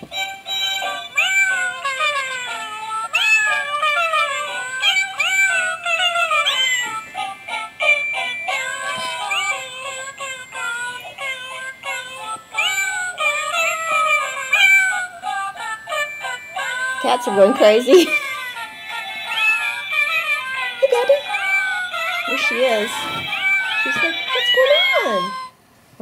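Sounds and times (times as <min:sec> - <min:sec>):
greeting card tune of cat meows: 0:22.3 - 0:25.4.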